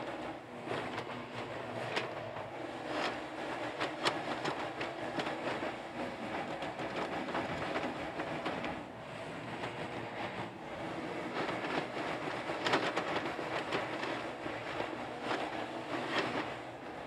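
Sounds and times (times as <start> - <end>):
excavator engine running: 0.0 - 17.0.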